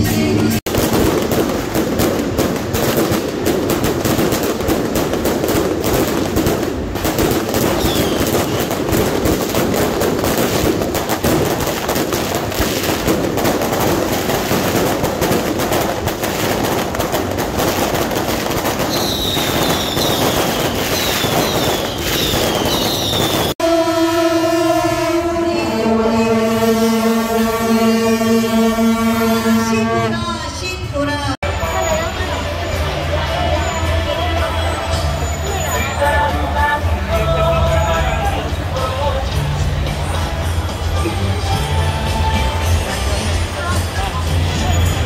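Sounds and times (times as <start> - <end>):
firecrackers crackling: 0.2 - 24.1
falling firework whistles: 0.7 - 23.6.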